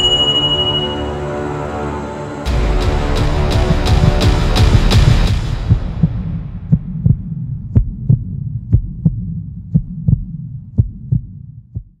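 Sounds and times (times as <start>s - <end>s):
low hum: 0.0s - 11.6s
heartbeat thuds: 3.7s - 12.0s.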